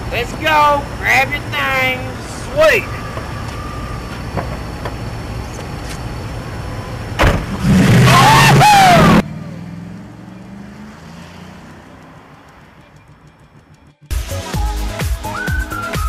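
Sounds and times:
car engine idling: 0.0s - 14.1s
car driving away: 2.9s - 14.1s
engine revving with squealing: 6.1s - 12.3s
car door shutting: 7.2s - 7.6s.

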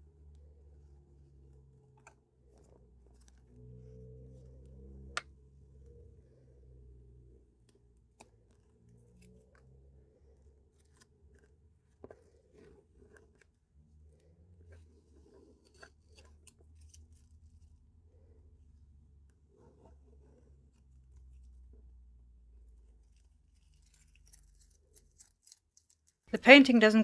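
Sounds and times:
tape peeling off paper: 23.0s - 26.2s.

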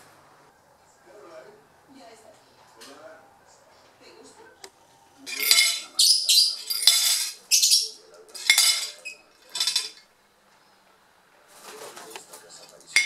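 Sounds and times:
metal fork clattering on plate: 5.3s - 10.0s, 12.6s - 13.0s.

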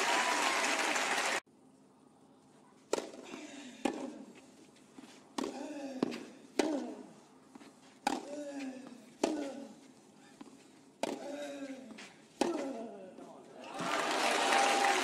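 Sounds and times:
tennis ball bouncing on clay: 2.9s - 4.2s, 8.0s - 8.4s, 10.4s - 11.3s
tennis ball struck with rackets: 2.9s - 4.2s, 5.4s - 7.0s, 8.0s - 8.4s, 11.0s - 11.3s, 12.4s - 12.8s.

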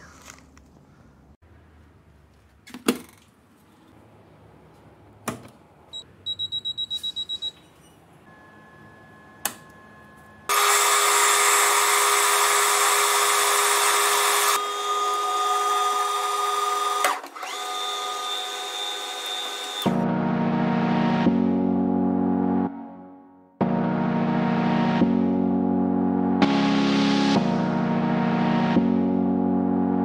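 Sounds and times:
short high beeps: 6.2s - 10.5s
drill boring into steel bar: 10.5s - 19.9s
metal lathe whining: 10.5s - 19.9s.

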